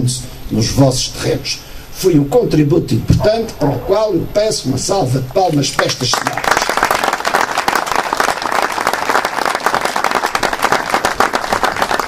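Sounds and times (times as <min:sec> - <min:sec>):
crowd applauding: 0:05.8 - 0:12.0.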